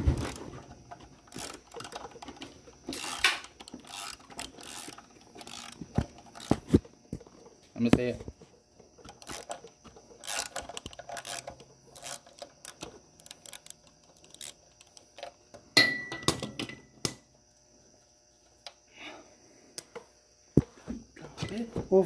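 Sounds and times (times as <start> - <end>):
ringing metallic clink: 15.8 - 16.3.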